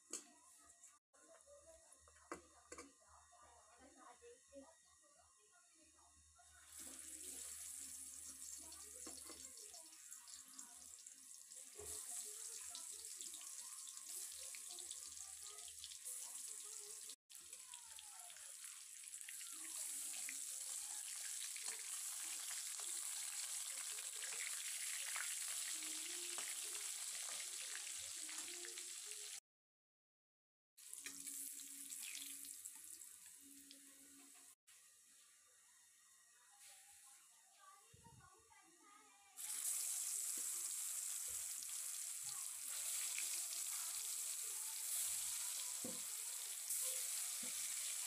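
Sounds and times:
deep-frying sizzle and crackle: 0:06.7 - 0:29.4, 0:30.8 - 0:34.6, 0:39.4 - 0:48.0.

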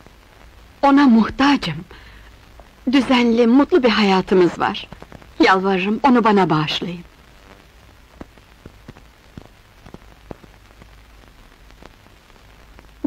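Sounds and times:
faint steady hiss: 0:00.0 - 0:13.0
soft film crackle clicks: 0:07.0 - 0:13.0.

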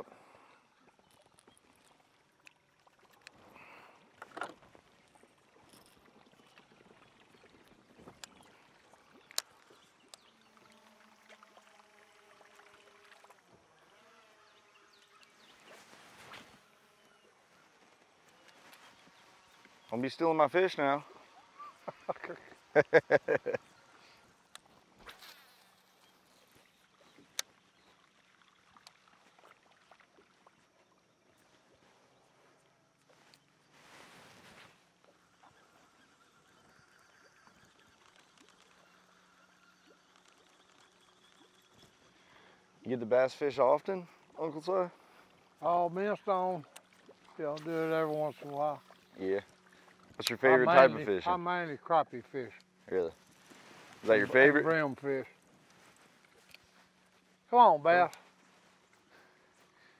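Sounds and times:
soft ticks of fishing reel: 0:00.9 - 0:03.4, 0:04.2 - 0:06.7, 0:07.3 - 0:11.1, 0:23.6 - 0:24.8, 0:25.6 - 0:28.0, 0:36.8 - 0:42.2, 0:55.6 - 0:57.2
fishing tackle clicks and knocks: 0:04.2 - 0:04.7, 0:09.2 - 0:09.6.

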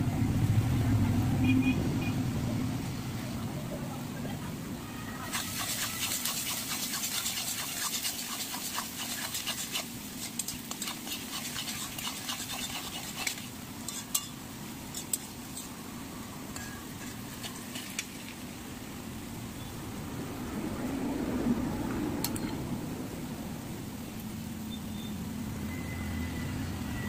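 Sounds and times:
metal spatula scraping a pan: 0:05.3 - 0:15.7, 0:16.5 - 0:18.0.

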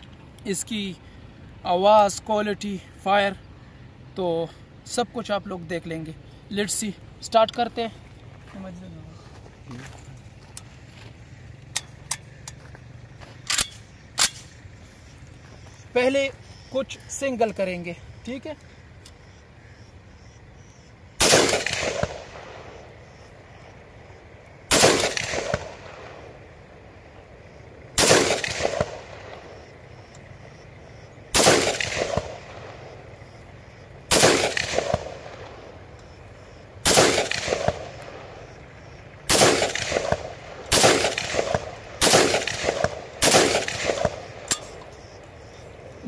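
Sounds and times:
rifle shots with echo: 0:21.2 - 0:23.2, 0:24.3 - 0:27.0, 0:27.8 - 0:29.7, 0:31.3 - 0:33.2, 0:34.0 - 0:35.9, 0:36.8 - 0:38.5, 0:39.2 - 0:44.8.

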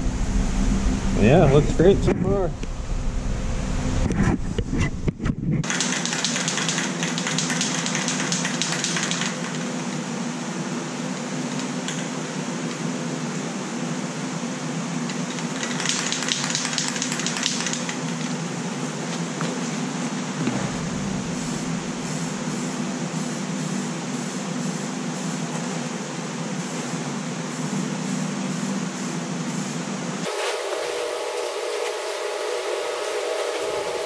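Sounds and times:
ventilation fan humming: 0:00.0 - 0:34.0
spray can hissing: 0:05.6 - 0:09.4, 0:30.2 - 0:34.0.

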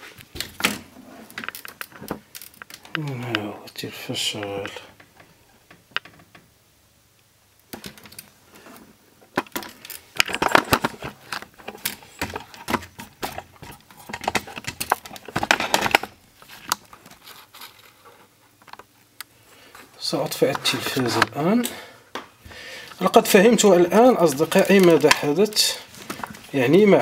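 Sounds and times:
small hard objects clicking: 0:01.4 - 0:03.5, 0:23.0 - 0:26.4.

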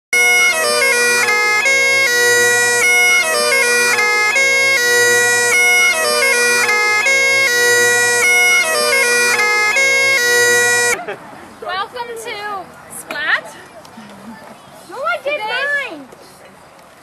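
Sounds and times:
bagpipes playing lively tune: 0:00.1 - 0:11.0.

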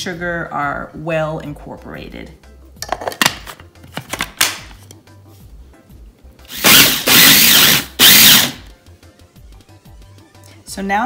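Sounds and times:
food processor blade whirring: 0:06.5 - 0:08.6.

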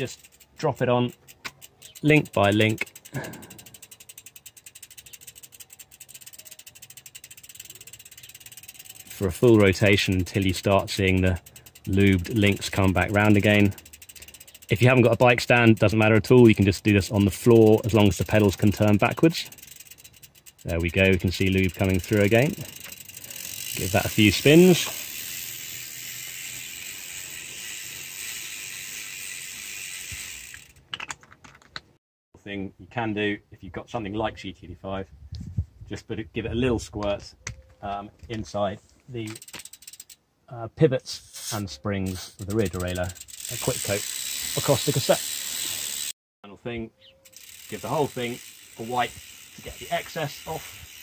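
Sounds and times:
bicycle freewheel clicking: 0:00.0 - 0:30.9, 0:39.3 - 0:40.2, 0:42.1 - 0:46.2, 0:47.2 - 0:51.0.

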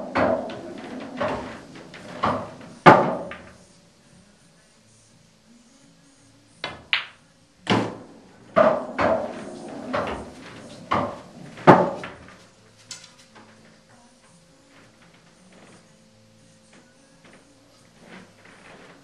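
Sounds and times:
ball rolling inside table: 0:00.0 - 0:03.6, 0:06.6 - 0:12.5
cue striking ball: 0:00.0 - 0:03.6, 0:06.6 - 0:12.4.

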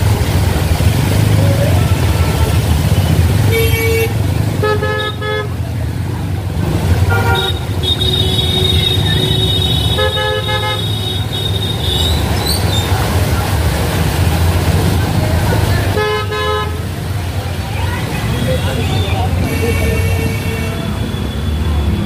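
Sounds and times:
traffic rumble: 0:00.0 - 0:22.0
vehicle horns honking: 0:02.2 - 0:05.6, 0:07.0 - 0:12.3, 0:15.9 - 0:16.9, 0:18.3 - 0:22.0.

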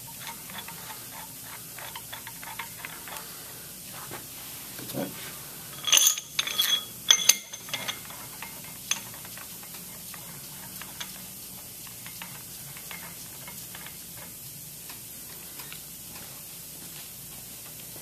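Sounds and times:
metal parts clanking: 0:05.8 - 0:09.3.

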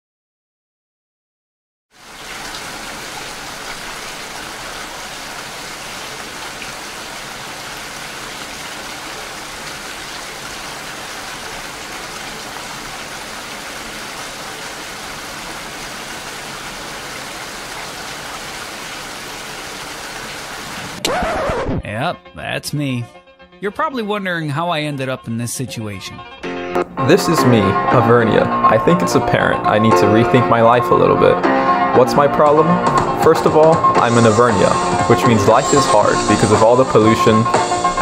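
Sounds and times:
steady rain: 0:01.9 - 0:21.0, 0:33.5 - 0:38.0.

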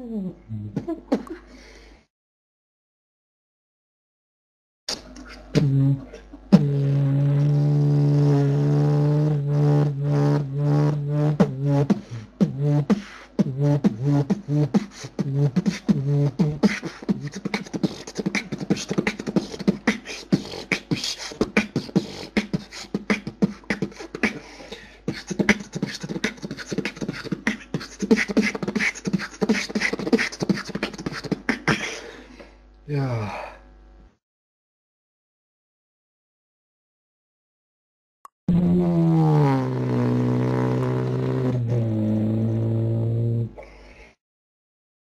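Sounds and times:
beatboxing: 0:04.9 - 0:32.2, 0:38.5 - 0:42.6.

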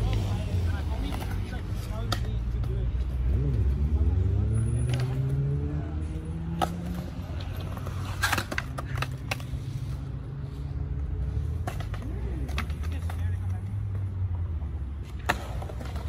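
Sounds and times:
low traffic rumble: 0:00.0 - 0:16.0
skateboard rolling on concrete: 0:00.0 - 0:16.0
skateboard clacking on bowl lip: 0:01.0 - 0:02.6, 0:06.5 - 0:09.8, 0:11.6 - 0:13.6, 0:15.0 - 0:16.0.

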